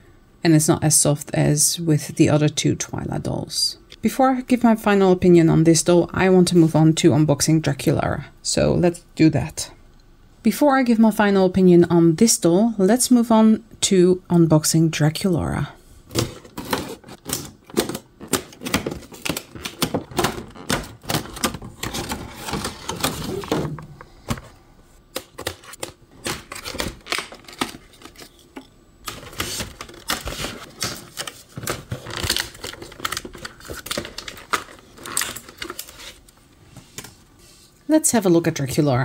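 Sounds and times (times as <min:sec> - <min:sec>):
plastic packaging crinkling: 0:25.6 - 0:36.4.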